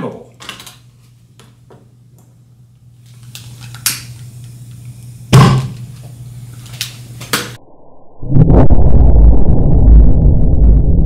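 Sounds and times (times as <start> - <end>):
steady low hum: 0.0 - 11.0
thump on lab bench: 5.4 - 5.8.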